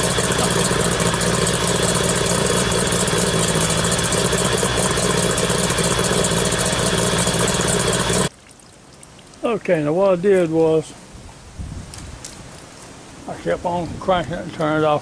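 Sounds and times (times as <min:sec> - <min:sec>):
outboard motor idling: 0:00.0 - 0:08.3.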